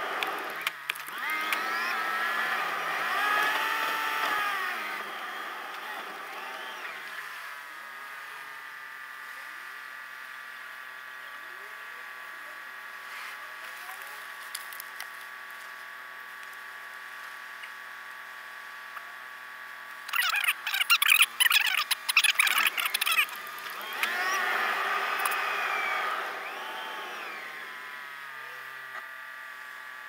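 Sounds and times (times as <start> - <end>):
high many-toned engine hum: 0.0 - 8.6, 20.1 - 30.0.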